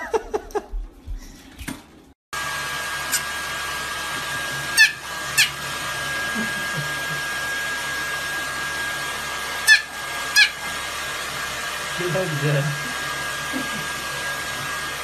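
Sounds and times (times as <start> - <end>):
hair dryer running: 2.3 - 15.0
puppy yipping: 4.7 - 5.6, 9.6 - 10.6.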